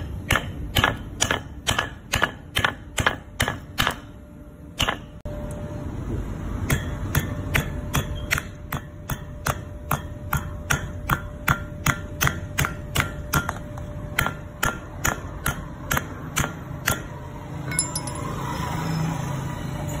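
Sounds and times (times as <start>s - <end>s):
hammer striking metal plate: 17.7s - 18.6s.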